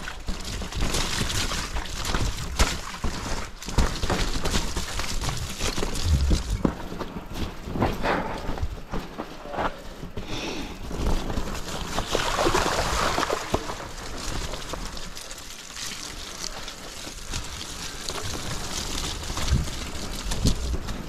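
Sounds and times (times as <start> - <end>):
bike knocks and rattles: 0.0 - 10.1
bike tyres rolling over dirt: 0.0 - 21.0
low rumble: 5.9 - 6.9.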